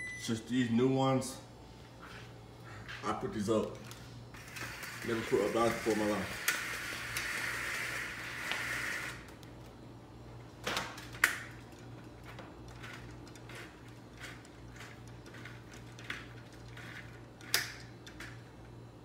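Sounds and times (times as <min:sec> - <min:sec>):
low steady hum: 0:00.0 - 0:05.3
plastic blinds clicking and clacking: 0:03.7 - 0:09.7, 0:10.6 - 0:18.8.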